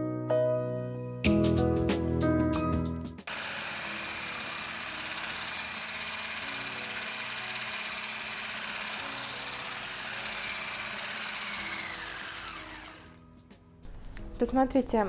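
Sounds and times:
electric hand mixer running: 3.3s - 13.2s.

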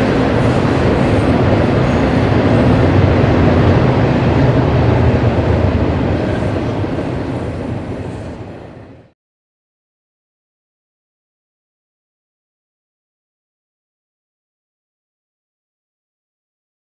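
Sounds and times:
train wheels on rail: 0.0s - 9.2s.

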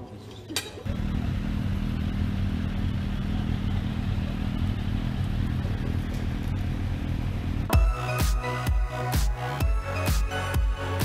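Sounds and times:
motorcycle engine running: 0.9s - 7.9s.

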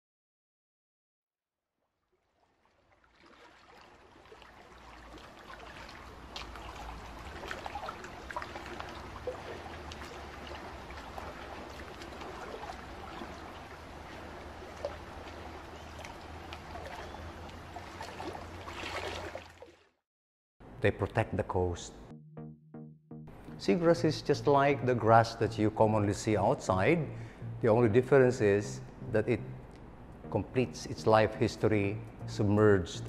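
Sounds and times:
moving water with gurgles: 2.2s - 20.0s.

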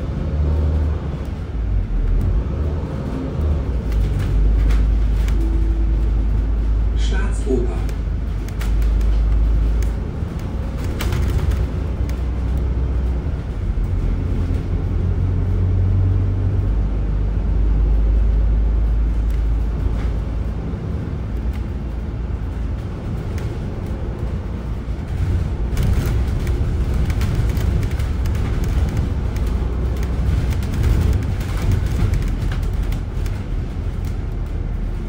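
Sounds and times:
bus drivetrain rumble: 0.0s - 35.0s
light rattles: 18.8s - 35.0s.

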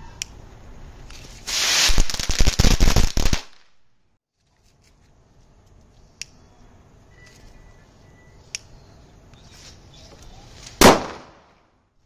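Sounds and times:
firecracker crackling: 1.3s - 3.8s, 10.8s - 11.4s.

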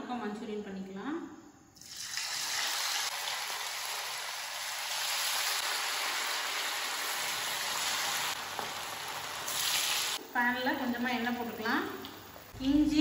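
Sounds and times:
fish sizzling in hot oil: 1.8s - 10.2s.

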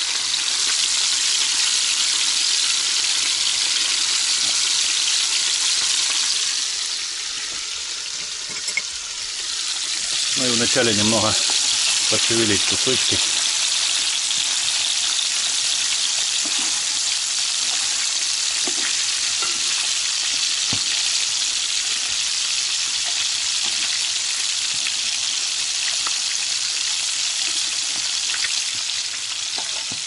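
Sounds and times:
fish sizzling in oil: 0.0s - 30.0s
metal utensil scraping pan: 8.1s - 9.0s, 16.4s - 17.0s, 18.6s - 20.0s, 29.5s - 30.0s.

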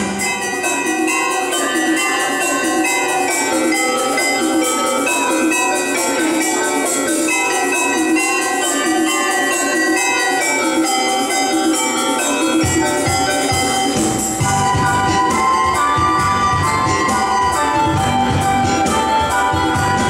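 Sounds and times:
electronic organ playing: 0.0s - 20.0s
bass line: 14.0s - 20.0s.

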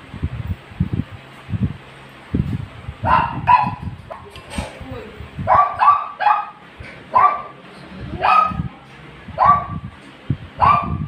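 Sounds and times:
dog barking: 3.0s - 4.2s, 5.4s - 7.6s, 8.2s - 8.7s, 9.4s - 9.8s, 10.6s - 11.0s.

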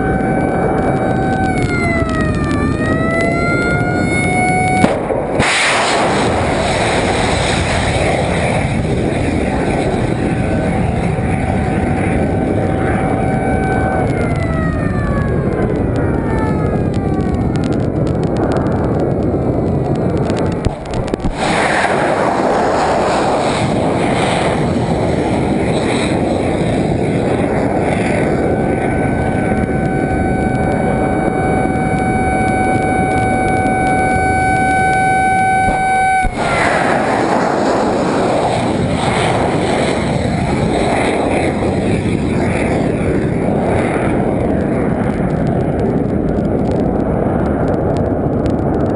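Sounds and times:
rocket booster roar: 0.0s - 48.9s
whistling tone: 29.9s - 36.4s.

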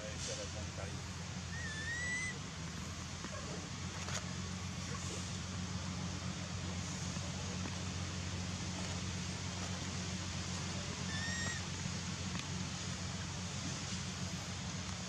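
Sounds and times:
steady hiss: 0.0s - 15.0s
baby monkey squeak: 1.5s - 2.4s, 11.1s - 11.6s.

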